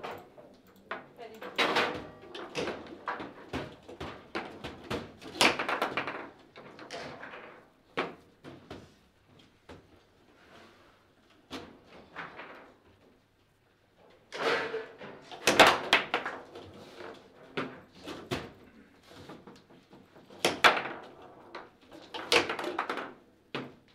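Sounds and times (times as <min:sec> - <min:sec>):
foosball rods knocking: 0:00.0 - 0:08.2, 0:20.0 - 0:23.9
foosball ball clacks and knocks: 0:00.0 - 0:08.8, 0:14.4 - 0:23.9.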